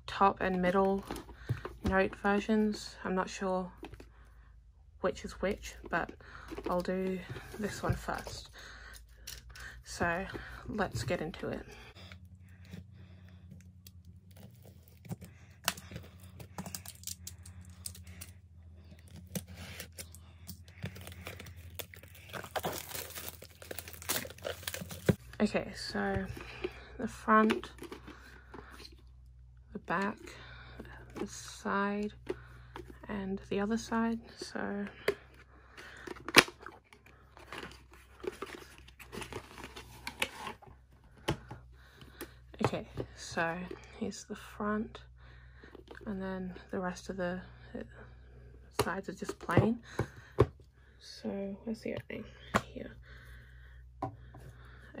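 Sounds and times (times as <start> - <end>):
plastic shrink-wrap crinkling: 20.7 - 25.2.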